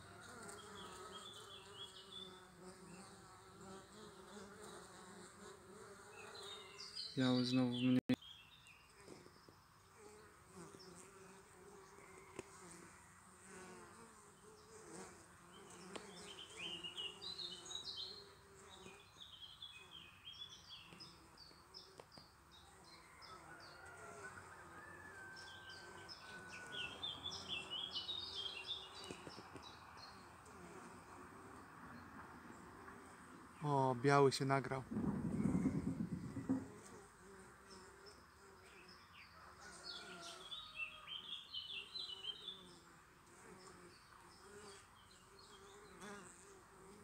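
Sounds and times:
bees buzzing: 0:00.0 - 0:08.0, 0:10.0 - 0:22.0, 0:23.6 - 0:33.5, 0:34.9 - 0:39.0
small birds chirping: 0:00.5 - 0:04.9, 0:05.9 - 0:11.1, 0:14.0 - 0:23.9, 0:25.4 - 0:36.6, 0:37.6 - 0:46.3.

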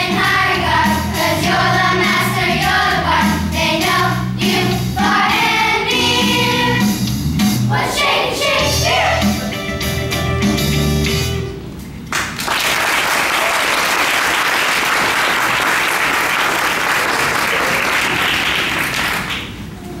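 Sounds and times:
audience applause: 0:12.1 - 0:19.8.

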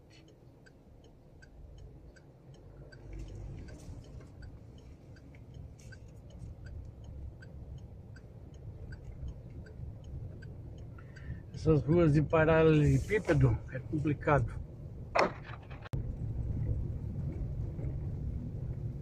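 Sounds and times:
turn signal ticking: 0:00.0 - 0:15.2
car rumbling over cobblestones: 0:00.0 - 0:19.0.

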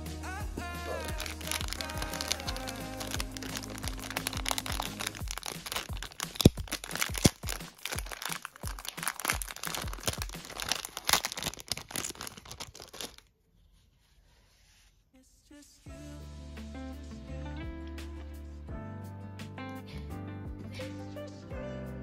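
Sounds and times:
background music: 0:00.0 - 0:11.7, 0:15.8 - 0:22.0
plastic bag crinkling: 0:00.9 - 0:13.3.

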